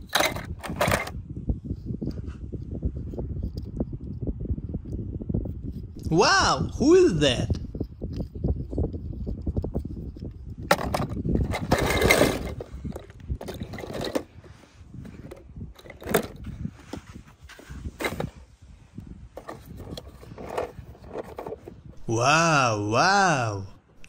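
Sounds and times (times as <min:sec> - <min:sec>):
toy cars scraping and clattering: 0:00.0 - 0:01.2, 0:10.7 - 0:18.4, 0:19.4 - 0:21.8.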